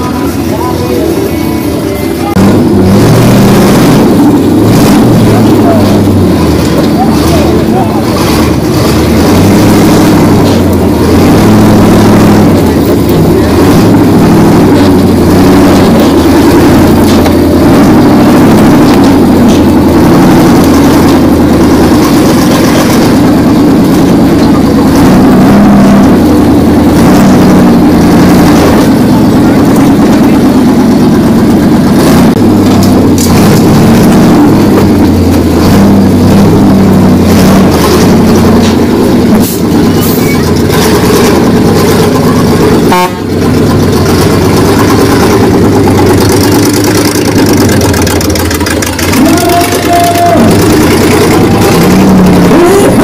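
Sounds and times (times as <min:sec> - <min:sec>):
truck engine running loud: 0:00.0 - 0:53.0.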